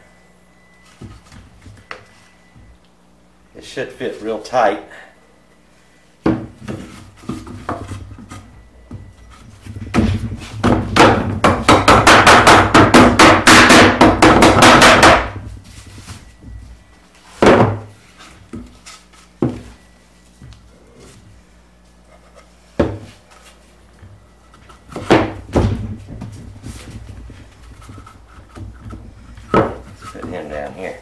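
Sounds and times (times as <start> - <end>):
hammer striking wooden boards: 9.9 - 15.4, 17.4 - 17.9, 24.9 - 25.8, 28.9 - 30.4.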